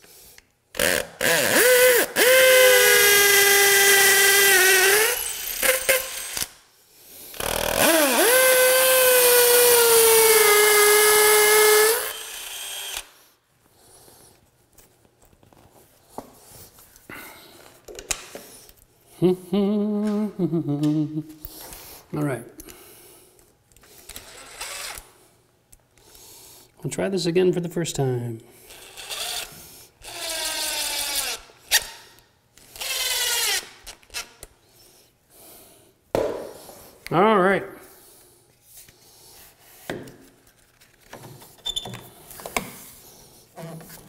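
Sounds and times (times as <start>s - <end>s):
cordless drill whining: 0.8s - 6.5s, 7.4s - 13.2s, 24.1s - 25.1s, 28.7s - 31.9s, 32.6s - 34.3s
quiet handling sounds: 14.3s - 18.9s.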